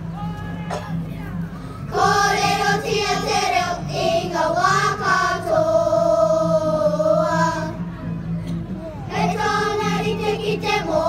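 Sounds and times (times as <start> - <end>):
girls singing in unison: 1.9 - 7.8, 9.1 - 11.0.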